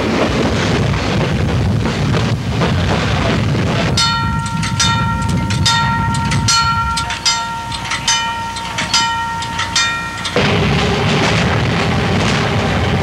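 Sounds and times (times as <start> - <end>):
electric trolley car rumble: 0.0 - 13.0
railroad crossing bell ringing: 3.9 - 11.3.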